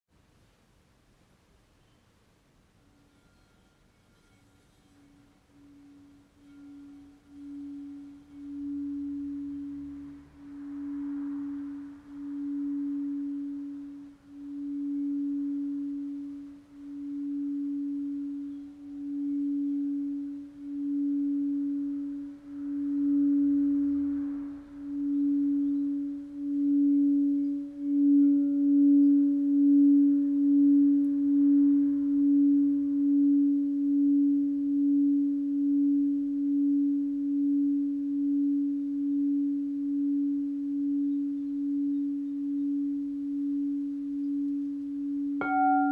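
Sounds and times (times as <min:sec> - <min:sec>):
singing bowl humming: 0:01.8 - 0:45.9.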